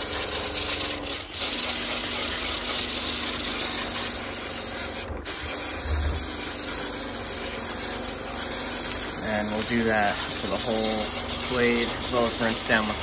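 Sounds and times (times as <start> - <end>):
pump hum: 0.0 - 13.0
water spray hiss: 5.3 - 7.6, 8.6 - 13.0.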